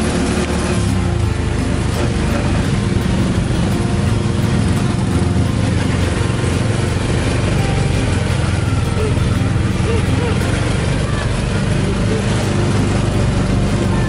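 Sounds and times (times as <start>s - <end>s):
road and wind noise: 0.0s - 14.0s
small engine running: 0.0s - 14.0s.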